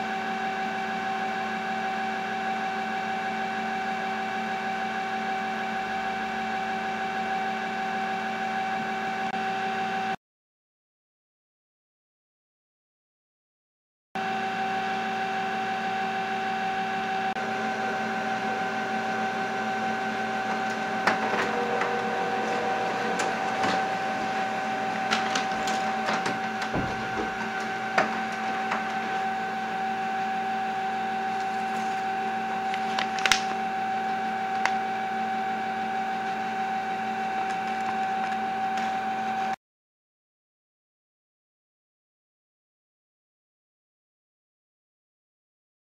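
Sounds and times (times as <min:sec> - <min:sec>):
printer motors whining: 0:17.4 - 0:39.6
paper feed clicks: 0:24.9 - 0:29.3, 0:31.3 - 0:33.7, 0:34.4 - 0:34.9.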